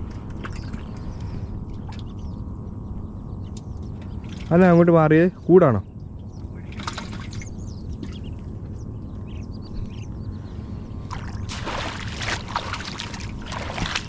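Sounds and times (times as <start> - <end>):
water splashing and sloshing: 0.0 - 2.4, 3.5 - 4.9, 6.5 - 8.7, 11.0 - 14.0
low steady rumble: 0.0 - 14.0.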